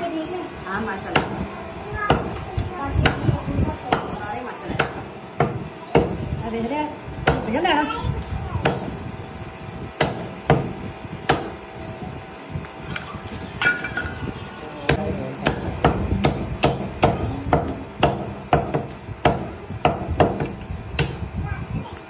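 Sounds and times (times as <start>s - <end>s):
cleaver chopping on wooden block: 10.0s - 10.7s, 11.3s - 11.6s, 14.9s - 21.2s.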